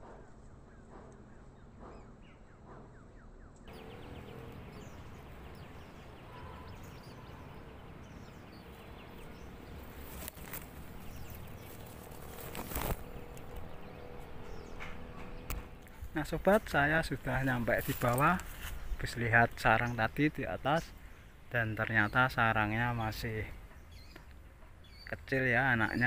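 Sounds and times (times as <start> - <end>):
sharp knocks: 14.7 - 15.8.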